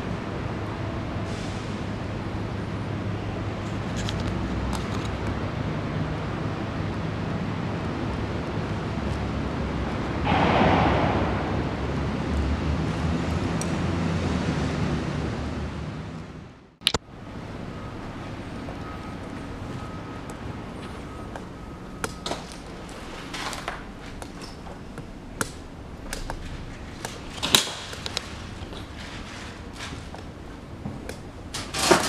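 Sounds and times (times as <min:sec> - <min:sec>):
wind noise on microphone: 0:10.2 - 0:14.3.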